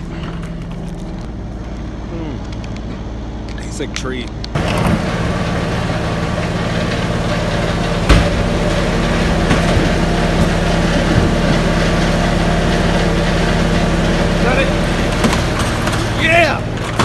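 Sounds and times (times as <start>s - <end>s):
engine idling: 0.0s - 17.0s
cart crashing into metal wall: 8.0s - 11.6s.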